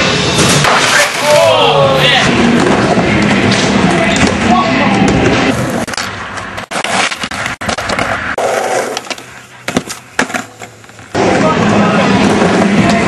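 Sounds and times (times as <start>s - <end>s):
skateboard wheels rolling on concrete: 0.0s - 13.0s
skateboard clacking on ground: 5.8s - 11.3s.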